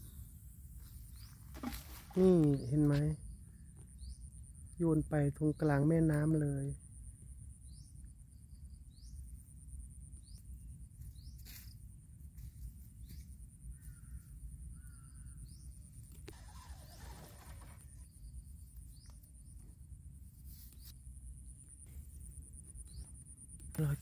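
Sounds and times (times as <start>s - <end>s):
small birds chirping: 0.0s - 6.8s, 7.6s - 11.8s, 13.0s - 19.8s, 21.8s - 24.0s
brief rustle: 1.3s - 3.0s.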